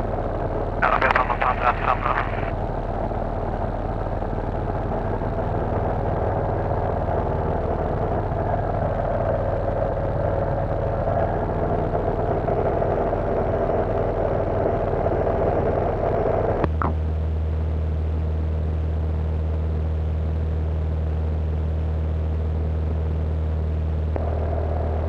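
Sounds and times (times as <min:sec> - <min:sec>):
propeller plane engine droning: 0:00.0 - 0:25.0.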